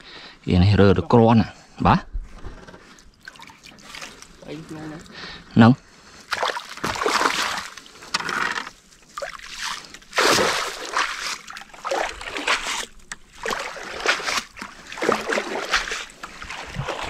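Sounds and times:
water splashing and sloshing: 2.8 - 17.0
net swishing through water: 3.2 - 4.7, 6.3 - 17.0.

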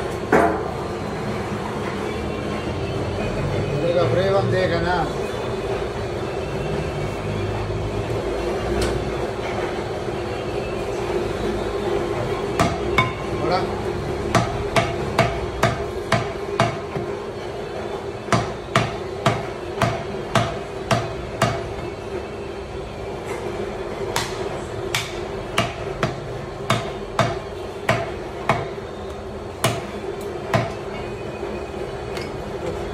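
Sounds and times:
cleaver chopping on wooden block: 18.3 - 21.6, 24.2 - 28.7, 29.6 - 29.9.

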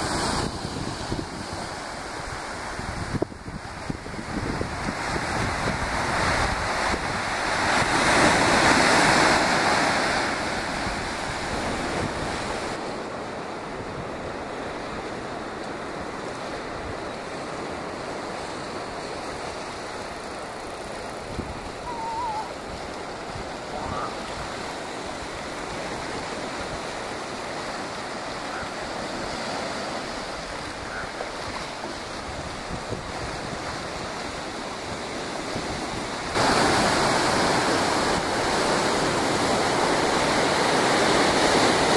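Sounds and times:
wind on microphone: 0.0 - 12.9, 13.6 - 41.9
ocean surf against rocks: 0.0 - 41.9.

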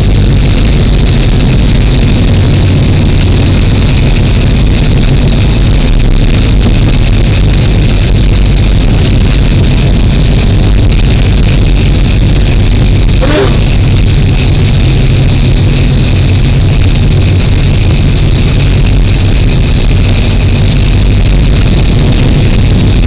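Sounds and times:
diesel locomotive engine running: 0.0 - 23.0
brief sharp noise: 13.2 - 13.8.

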